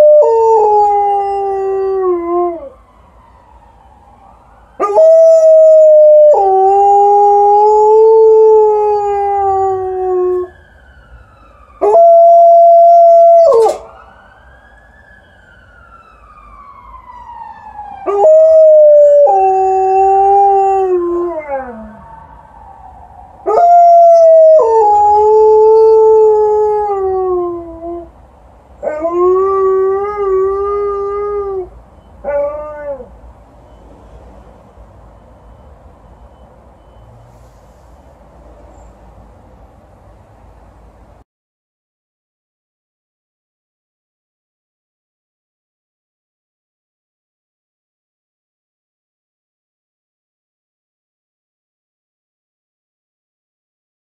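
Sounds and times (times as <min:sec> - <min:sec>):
faint ambulance siren: 0:00.0 - 0:41.2
dog howling: 0:11.8 - 0:13.9, 0:18.1 - 0:22.0, 0:23.4 - 0:28.1.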